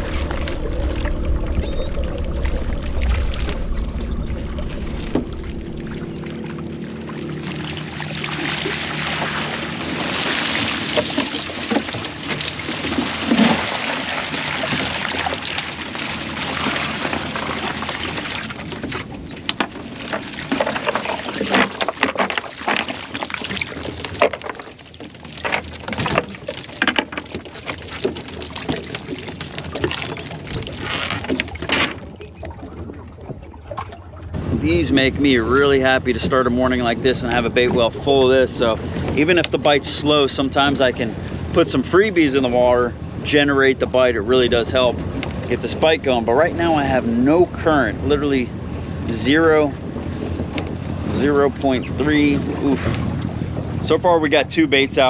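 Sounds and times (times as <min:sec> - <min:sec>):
fish flopping on deck: 0:00.0 - 0:39.5
water pouring and splashing: 0:00.0 - 0:42.7.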